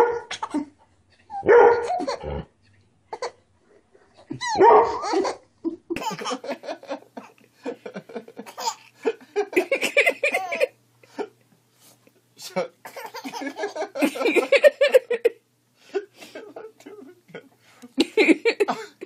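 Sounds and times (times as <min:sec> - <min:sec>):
small dog barking: 0:00.0 - 0:00.3, 0:01.4 - 0:02.0, 0:04.5 - 0:05.1
baby laughing: 0:00.2 - 0:02.3, 0:04.2 - 0:06.6, 0:08.4 - 0:09.0, 0:09.6 - 0:10.8, 0:12.9 - 0:15.0.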